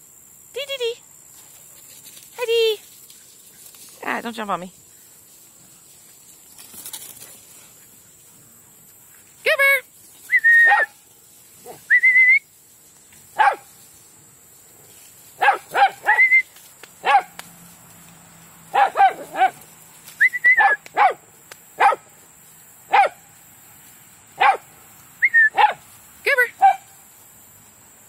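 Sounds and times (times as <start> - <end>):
dogs barking and yelping: 10.4 - 11.0, 15.4 - 16.4, 18.7 - 19.7, 20.4 - 21.2, 21.8 - 22.0, 24.4 - 24.7.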